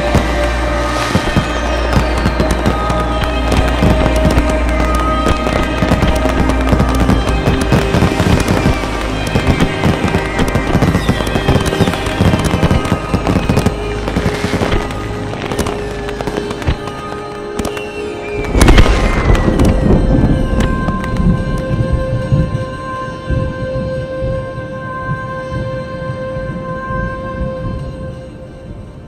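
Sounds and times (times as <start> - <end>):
crackling thunder: 0.0 - 22.8
music with sustained held notes: 0.0 - 29.0
heavy low thunder rumble: 18.4 - 23.5.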